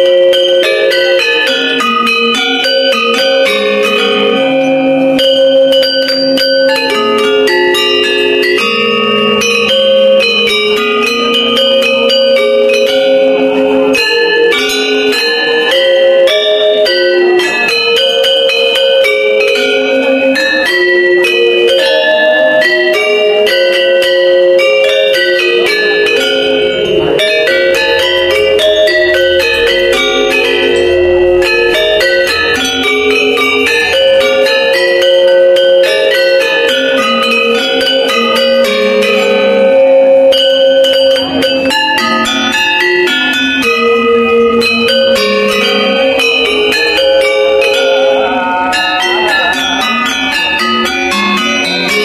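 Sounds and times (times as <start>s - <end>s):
metallophones playing interlocking patterns: 0.0s - 52.0s.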